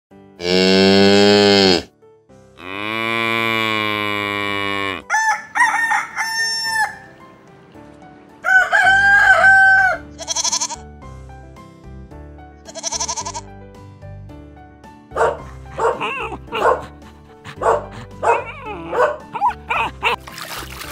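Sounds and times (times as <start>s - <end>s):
soft background music: 0.2s - 20.9s
cow mooing: 0.4s - 1.9s, 2.6s - 5.1s
short bleat: 0.4s - 1.9s, 2.6s - 5.1s, 10.2s - 10.8s, 12.6s - 13.5s
rooster crowing: 5.0s - 7.2s, 8.4s - 10.1s.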